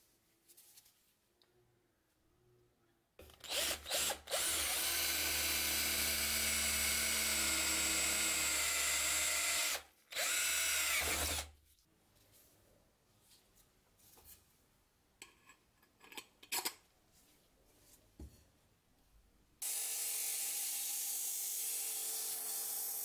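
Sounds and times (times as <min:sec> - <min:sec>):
electric drill boring metal: 0:03.5 - 0:11.5, 0:19.6 - 0:23.0.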